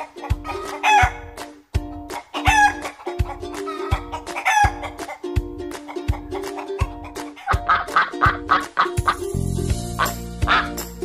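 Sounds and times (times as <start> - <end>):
chicken calls: 0.0 - 1.4, 2.1 - 5.2, 5.8 - 9.2, 10.0 - 10.8
music with bass-drum beat: 0.2 - 11.0.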